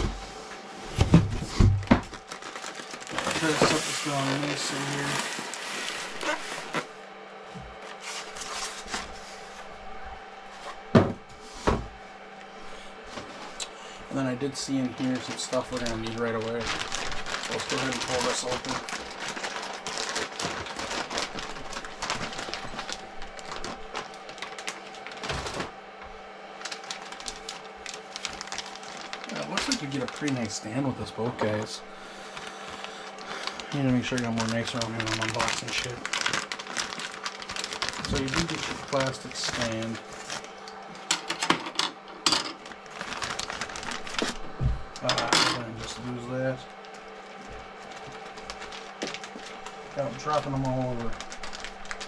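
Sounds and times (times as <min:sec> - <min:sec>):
plastic packaging crinkling: 0:01.6 - 0:06.9, 0:14.1 - 0:25.8, 0:26.5 - 0:41.1, 0:42.6 - 0:52.0.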